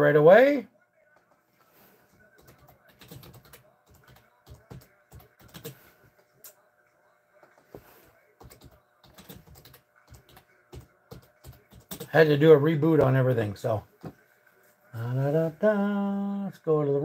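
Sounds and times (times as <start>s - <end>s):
typing on computer keyboard: 2.4s - 5.8s, 8.4s - 12.2s.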